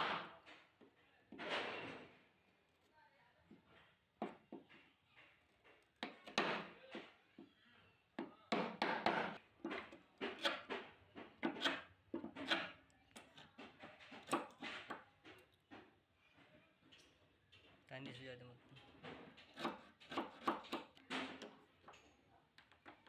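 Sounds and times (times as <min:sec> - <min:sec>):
chisel cracking and scraping wood: 0:08.5 - 0:15.4.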